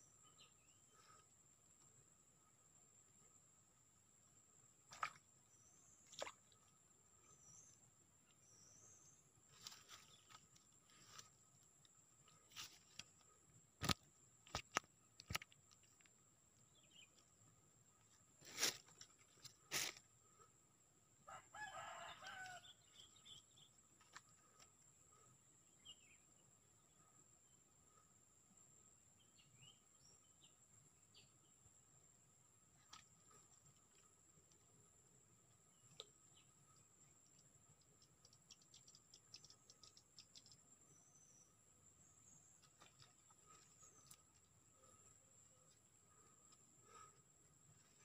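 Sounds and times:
rooster crowing: 21.3s - 22.8s.

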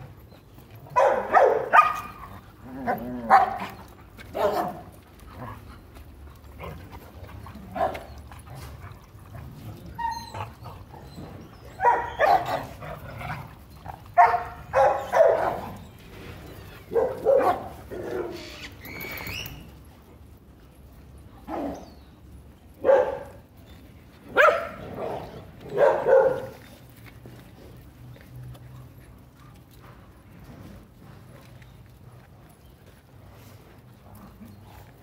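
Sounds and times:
dogs barking: 0.9s - 5.0s, 7.6s - 8.7s, 10.4s - 13.0s, 14.1s - 15.8s, 16.8s - 18.4s, 22.8s - 23.4s, 24.3s - 26.6s.

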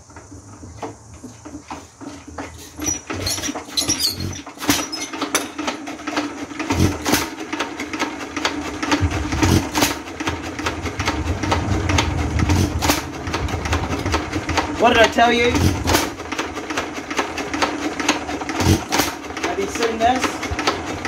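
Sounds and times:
valve gear clatter: 0.0s - 10.0s
stationary engine thumping: 0.0s - 21.0s
steady hum: 8.7s - 17.0s.

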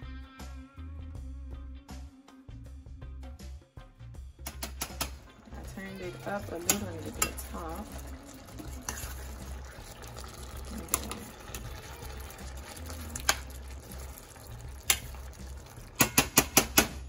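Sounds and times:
spoon clicking against pan: 4.5s - 5.2s, 6.6s - 7.5s, 13.1s - 13.6s, 14.8s - 15.3s, 16.0s - 17.0s
spoon stirring: 4.5s - 16.8s
sauce simmering: 4.5s - 16.9s.

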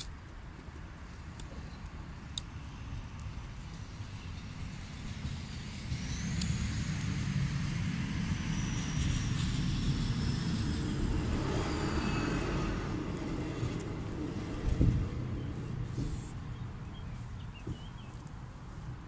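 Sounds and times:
train rumbling: 0.8s - 19.0s
faint high whine: 2.5s - 15.8s.

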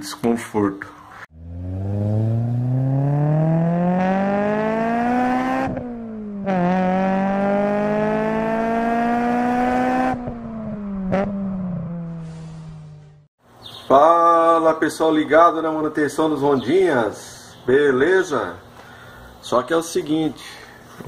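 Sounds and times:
car engine revving: 1.3s - 13.3s.

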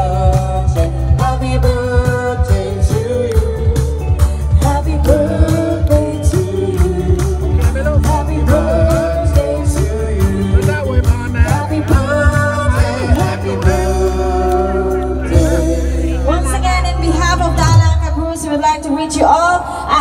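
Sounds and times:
person singing: 0.0s - 16.5s
steady drum beat: 0.0s - 16.6s
live band playing: 0.0s - 19.5s.

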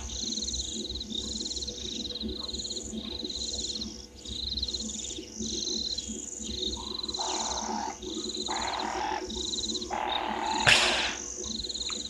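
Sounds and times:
bird high trill: 9.9s - 11.2s
harsh raspy bird screeches: 9.9s - 11.2s.

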